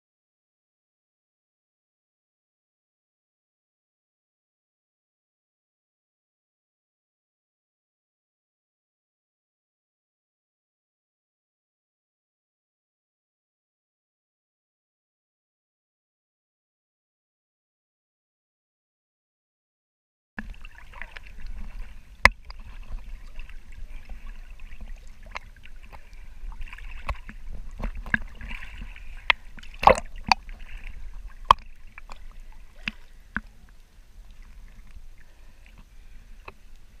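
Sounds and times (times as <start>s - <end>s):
water sloshing and lapping: 20.4s - 37.0s
sharp splashing knocks: 26.9s - 30.6s.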